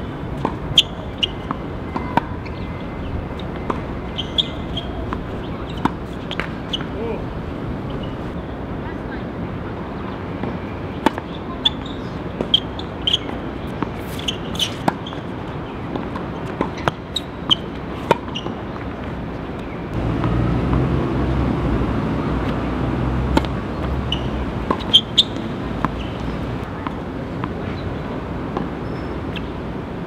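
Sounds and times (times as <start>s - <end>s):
tennis balls struck and bouncing: 0.3s - 2.6s, 3.4s - 7.2s, 19.9s - 27.8s.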